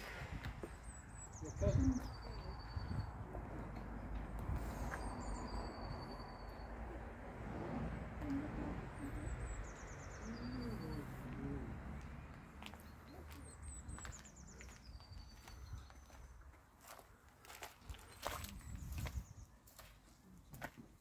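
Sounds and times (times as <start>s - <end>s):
songbird singing: 0.0s - 20.6s
wind on microphone: 18.3s - 19.4s.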